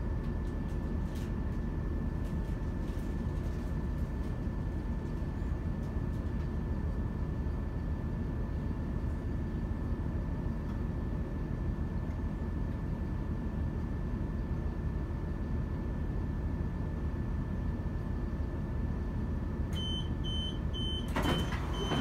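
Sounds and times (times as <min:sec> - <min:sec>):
high door-warning beeps: 0:19.8 - 0:22.0.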